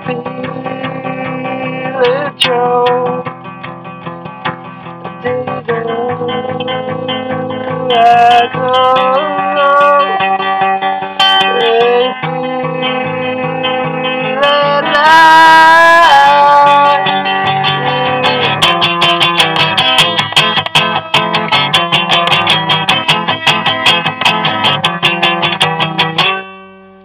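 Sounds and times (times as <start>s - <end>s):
person singing: 0.0s - 3.4s, 5.1s - 20.3s
strummed guitar: 0.0s - 27.0s.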